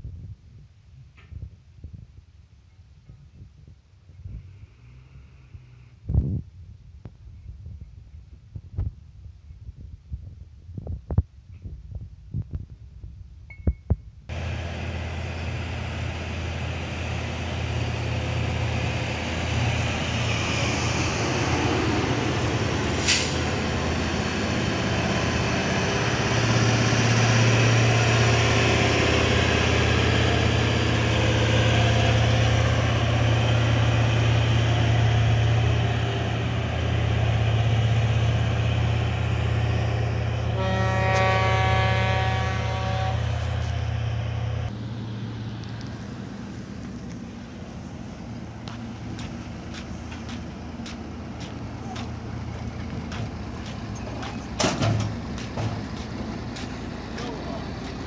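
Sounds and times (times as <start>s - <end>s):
heavy diesel engine running: 14.3s - 58.0s.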